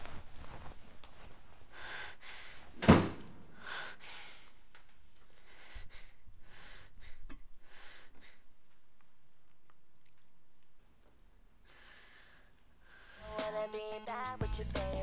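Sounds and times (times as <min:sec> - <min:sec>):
soft scuffing footsteps: 0:00.0 - 0:01.7.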